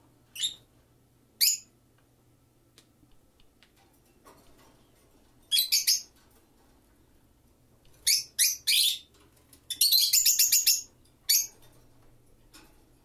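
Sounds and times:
lovebird chirping: 0.3 - 0.7, 1.4 - 1.7, 5.5 - 6.1, 8.0 - 9.1, 9.7 - 11.6
faint small clicks: 2.7 - 4.5.

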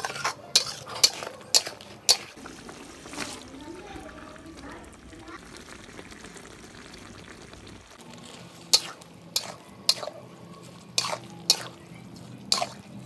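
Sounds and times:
metal spatula scraping a wok: 0.0 - 2.4, 8.0 - 13.0.

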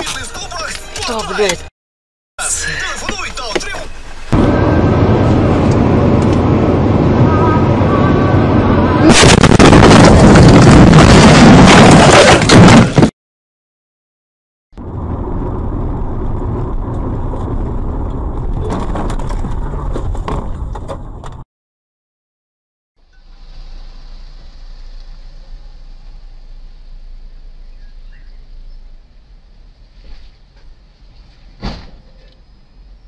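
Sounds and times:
car road and engine noise: 2.4 - 9.1, 14.8 - 21.4, 23.0 - 33.0
loud distorted crash noise: 9.0 - 13.1.

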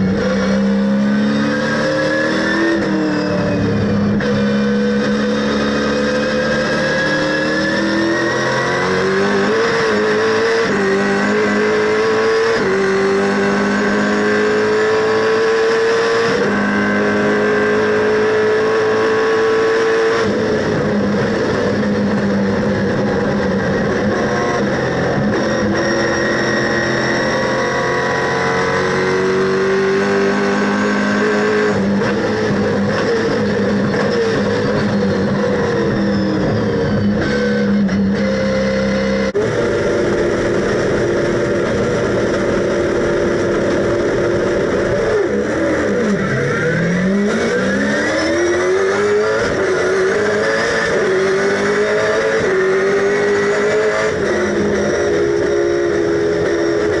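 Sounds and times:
race car engine revving: 0.0 - 57.0.

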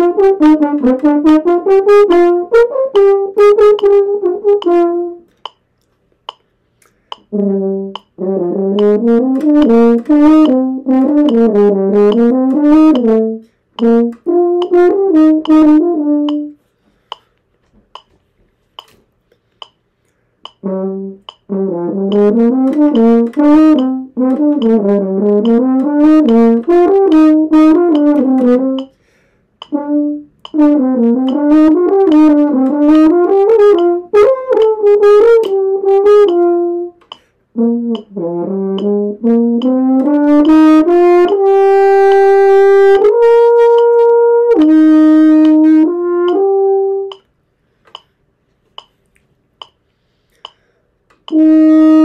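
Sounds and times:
french horn playing: 0.0 - 5.3, 7.3 - 16.6, 20.6 - 28.9, 29.6 - 47.2, 51.3 - 52.0
faint clicks: 37.0 - 37.3, 47.1 - 51.4.

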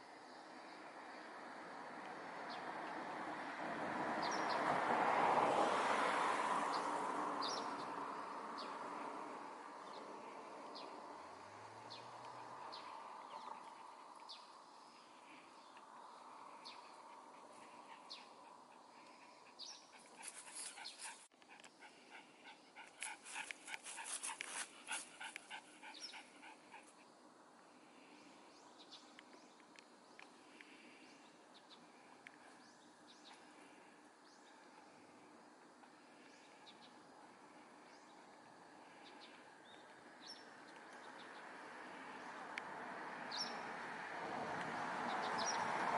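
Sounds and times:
sparrows chirping: 7.4 - 8.8, 11.7 - 21.2, 22.9 - 26.9, 43.3 - 43.6, 45.1 - 45.7.

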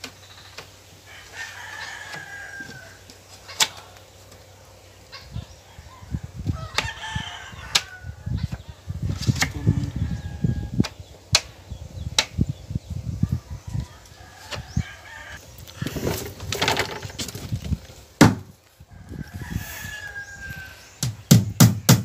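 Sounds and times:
rooster crowing: 1.1 - 4.0, 5.2 - 8.5, 9.5 - 10.8, 13.3 - 15.4, 18.8 - 21.0
sharp knocks on wood: 18.2 - 18.5, 21.0 - 22.0.

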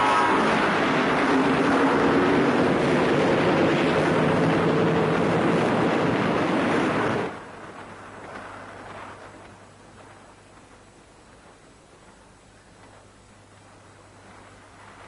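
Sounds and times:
train rushing rumble: 0.0 - 9.6.

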